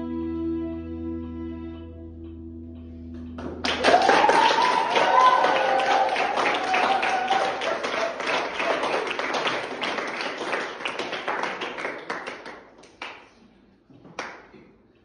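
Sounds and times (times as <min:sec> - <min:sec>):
audience applauding: 0:03.4 - 0:13.4.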